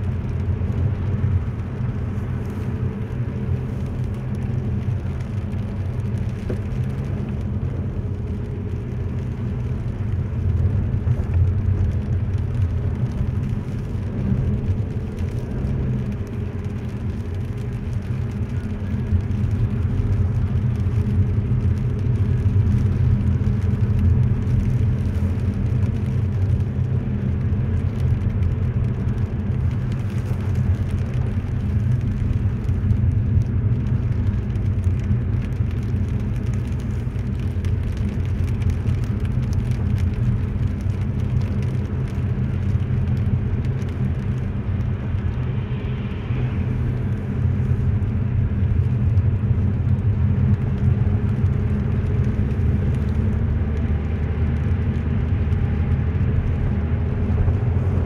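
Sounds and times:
car engine rumble: 0.0s - 58.0s
tyres on wet snowy road: 0.0s - 58.0s.

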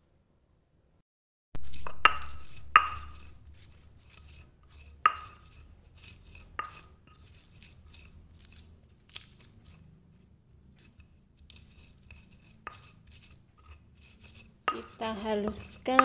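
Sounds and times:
stone knocking on stone: 1.6s - 3.2s, 14.7s - 16.0s
pestle scraping and crunching: 1.6s - 16.0s.

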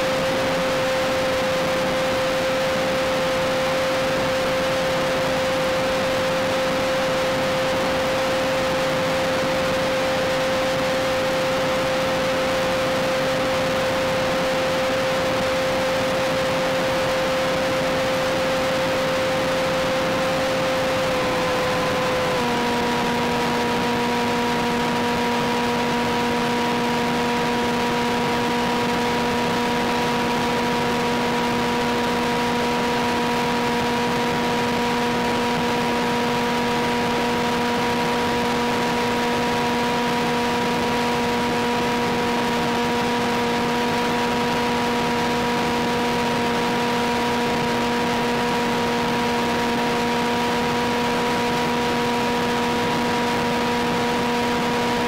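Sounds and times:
steady multi-tone whine: 0.0s - 55.0s.

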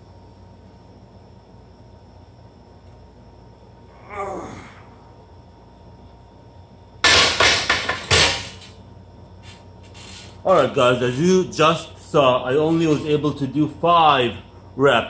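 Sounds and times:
man groaning: 3.9s - 5.1s.

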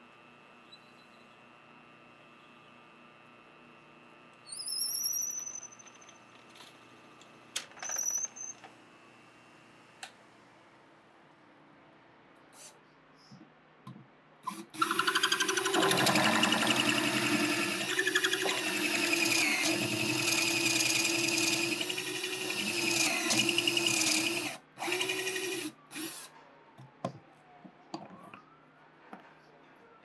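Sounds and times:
power drill boring into wood: 14.5s - 26.2s.

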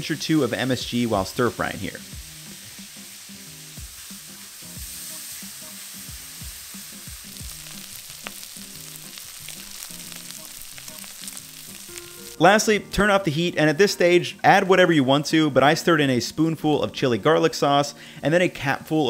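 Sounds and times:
food sizzling in a wok: 0.0s - 12.4s.

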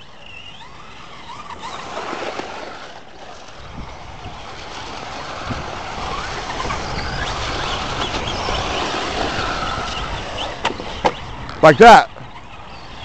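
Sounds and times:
electric motor whine: 0.0s - 13.0s
tyres on wet dirt: 0.0s - 13.0s.

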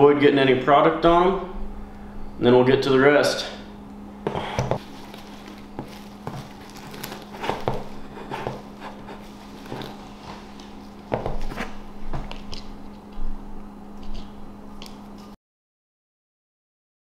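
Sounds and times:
steady low hum: 0.0s - 15.4s
plastic wrap crinkling: 4.8s - 10.7s.

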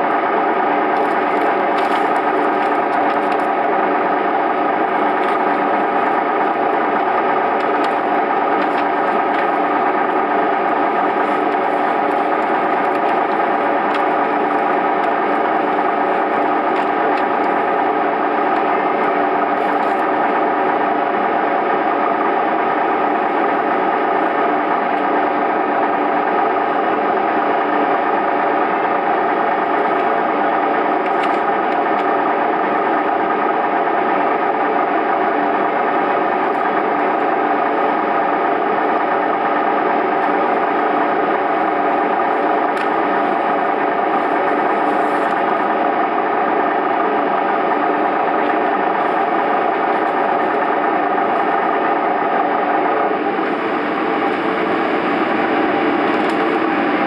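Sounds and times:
diesel train engine idling: 0.0s - 57.0s.

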